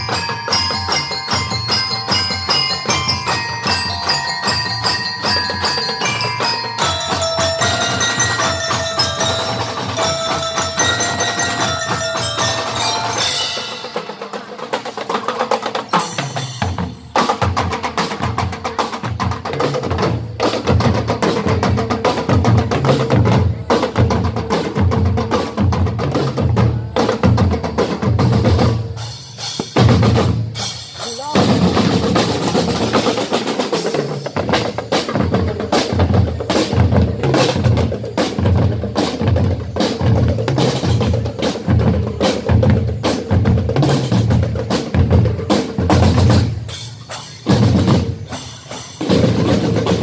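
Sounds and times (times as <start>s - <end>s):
bell lyre melody: 0.0s - 14.4s
drums playing heavy beat: 0.0s - 50.0s.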